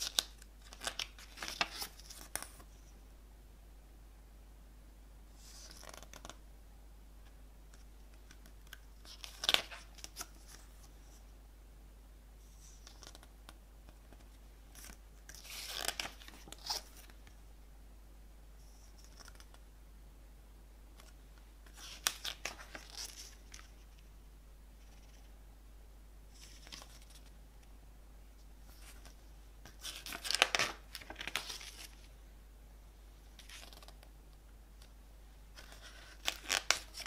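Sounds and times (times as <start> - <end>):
paper pages turning: 0.0 - 2.7, 5.4 - 6.4, 7.8 - 11.0, 12.5 - 13.3, 13.9 - 17.3, 18.8 - 19.6, 21.0 - 24.0, 26.4 - 27.3, 28.6 - 32.1, 33.4 - 34.1, 35.6 - 37.0.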